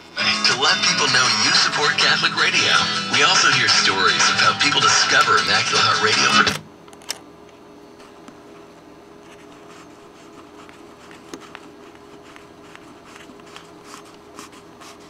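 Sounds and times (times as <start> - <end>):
radio static hiss: 0.0 - 6.6
faint steady hum: 0.0 - 15.0.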